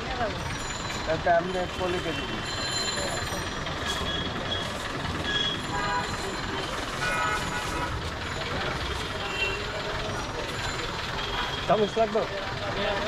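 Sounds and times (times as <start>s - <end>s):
traffic rumble: 0.0s - 13.0s
car horn toots: 7.0s - 8.0s
people chattering: 7.9s - 13.0s.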